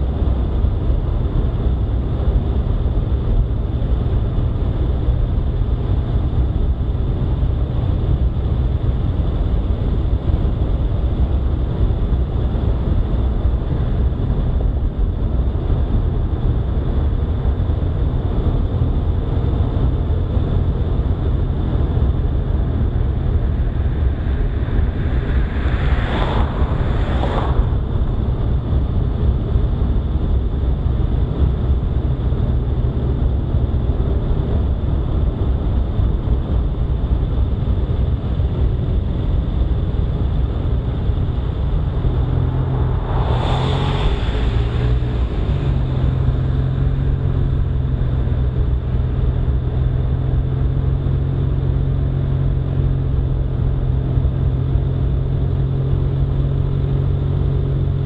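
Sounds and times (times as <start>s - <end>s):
wind buffeting microphone: 0.0s - 51.7s
vehicle driving on paved road: 0.0s - 58.0s
double whoosh: 21.6s - 29.7s, 40.2s - 48.1s.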